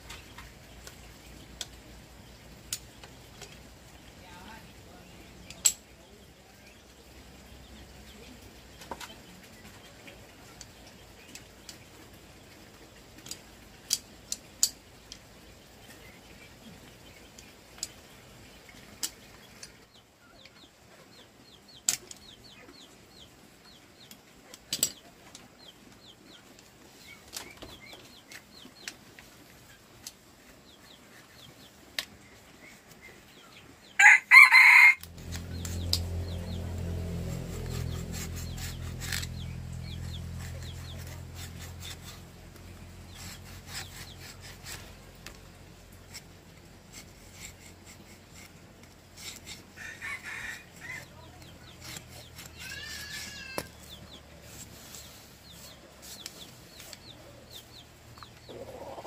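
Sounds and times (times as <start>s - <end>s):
chicken calling: 58.5s - 59.0s.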